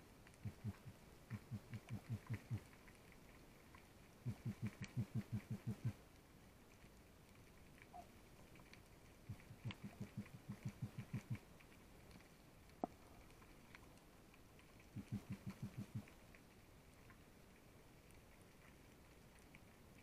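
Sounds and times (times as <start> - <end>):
faint scattered clicks: 0.2 - 20.0
low rapid underwater pulses: 0.4 - 2.8, 4.2 - 6.0, 9.3 - 11.5, 14.9 - 16.2.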